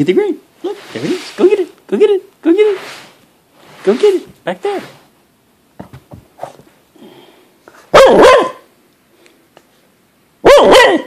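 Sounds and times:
dog barking loudly: 7.9 - 8.7, 10.4 - 11.0.

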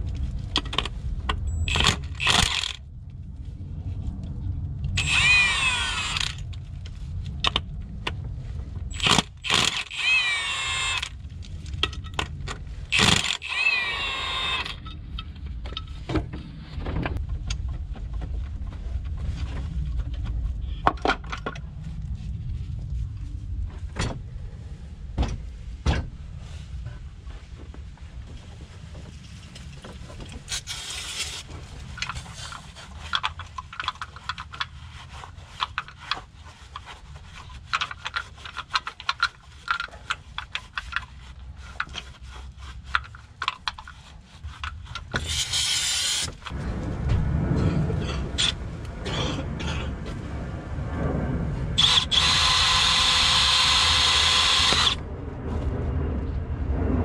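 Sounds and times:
cordless power tool running: 1.7 - 2.8, 5.0 - 6.4, 8.9 - 11.1, 12.9 - 14.8, 51.8 - 55.0
tool handling clicks and knocks: 32.0 - 34.8, 37.6 - 46.5.

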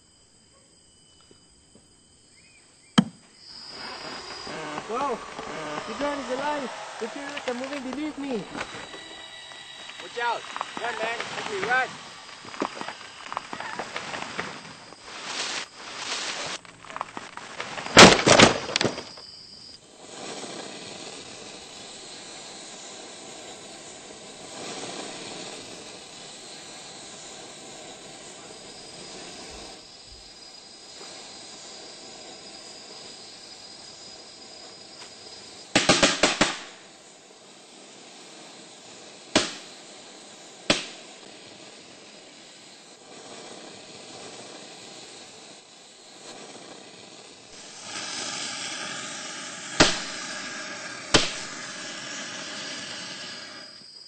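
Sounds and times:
steady hiss: 0.0 - 54.0
branch crashing down: 15.2 - 19.2.

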